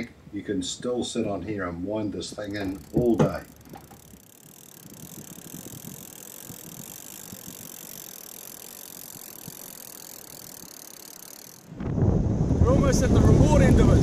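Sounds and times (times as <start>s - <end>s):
fishing reel ticking: 2.2s - 11.8s.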